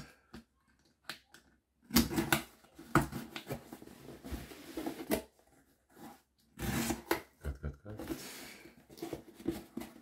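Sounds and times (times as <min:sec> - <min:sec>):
blade scraping cardboard: 0:06.6 - 0:07.2.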